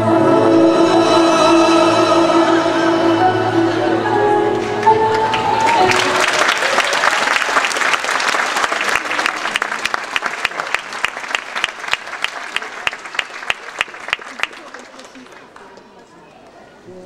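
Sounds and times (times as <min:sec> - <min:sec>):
audience applauding: 0:04.6 - 0:16.0.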